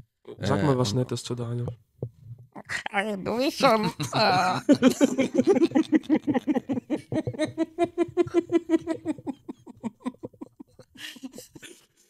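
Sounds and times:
men laughing hard: 3.6s - 11.8s.

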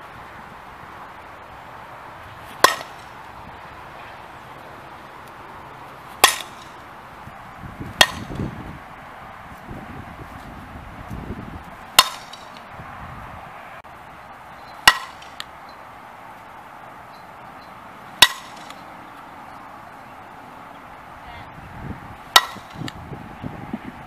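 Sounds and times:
bat cracking ball: 2.4s - 3.4s, 6.1s - 6.9s, 7.9s - 8.5s, 11.8s - 12.7s, 14.8s - 15.6s, 18.1s - 19.3s, 22.2s - 23.1s.

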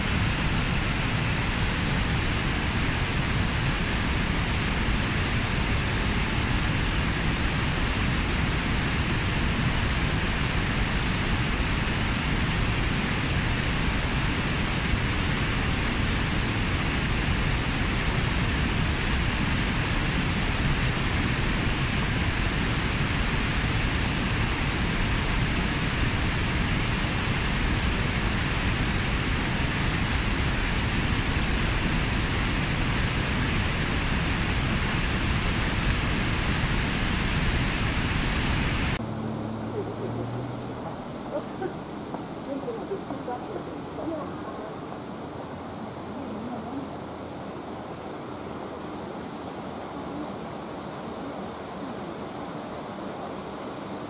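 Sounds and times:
waterfall rushing over rock: 0.0s - 39.6s.

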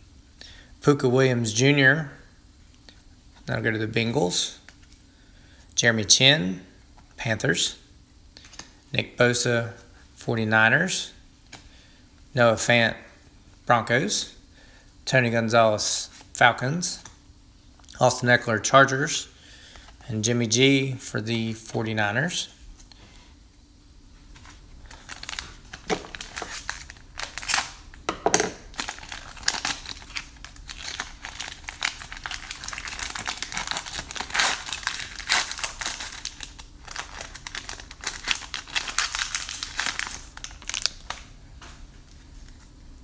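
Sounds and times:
plastic wrapper crinkling: 24.3s - 41.3s.

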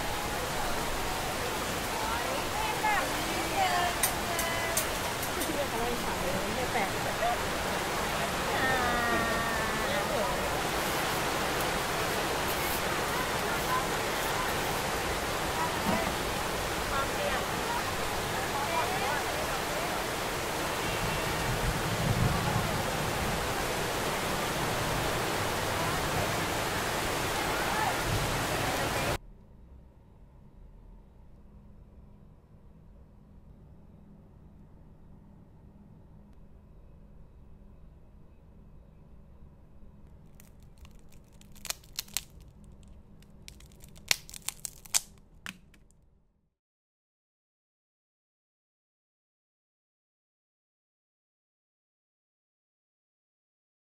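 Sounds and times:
faint distant voices: 0.0s - 24.3s
cracker crackling and snapping: 40.1s - 46.0s.

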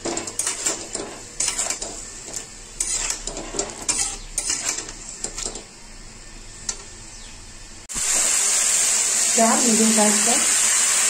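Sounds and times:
light frying sizzle: 0.0s - 11.0s
spatula scraping metal pan: 0.4s - 5.5s.

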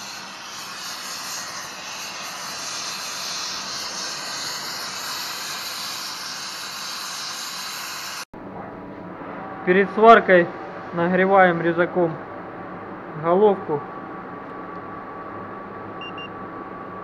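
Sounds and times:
welding arc hissing: 0.0s - 8.3s.

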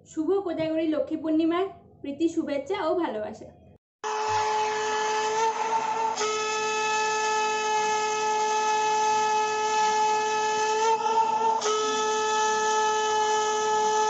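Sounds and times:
conch shell blown: 4.0s - 14.0s.

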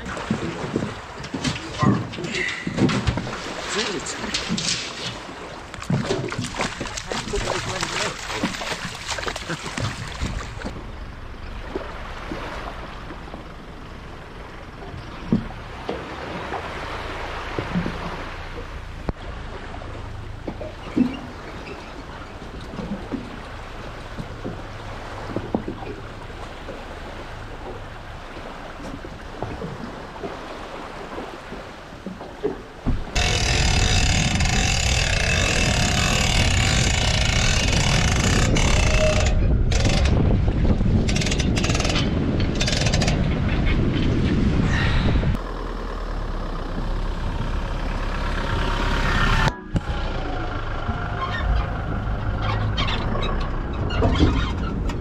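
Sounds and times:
water splashing: 0.0s - 13.8s, 15.2s - 55.0s
vehicle engine running: 7.2s - 15.9s, 45.3s - 55.0s
engine idling: 33.2s - 40.1s, 45.3s - 54.0s.

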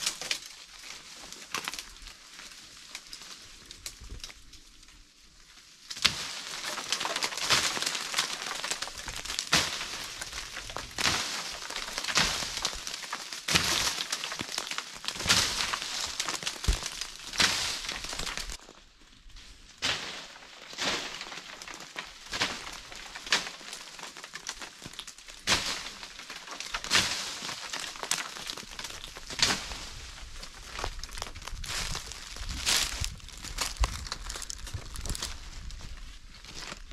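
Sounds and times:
dry leaves and twigs rustling: 0.0s - 36.9s
twigs snapping: 5.9s - 18.7s, 20.8s - 36.9s.

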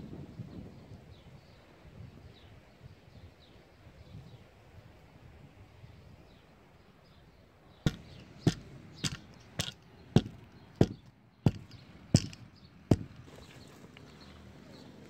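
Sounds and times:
hand tamper thudding on gravel: 7.9s - 13.4s.

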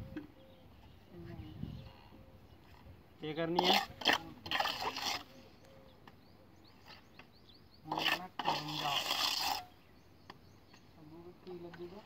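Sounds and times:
faint bird chirps: 0.0s - 3.3s, 5.2s - 7.9s.

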